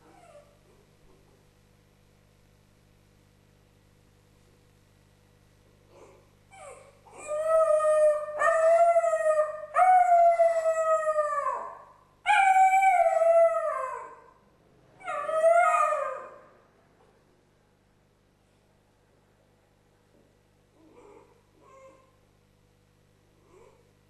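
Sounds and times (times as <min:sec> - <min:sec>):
dog howling: 0:06.0 - 0:14.3, 0:15.0 - 0:16.5.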